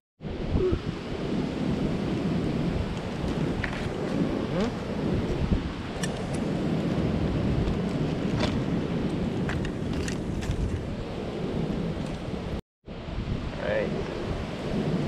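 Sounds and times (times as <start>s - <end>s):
wind rumbling on microphone: 0.2s - 15.0s.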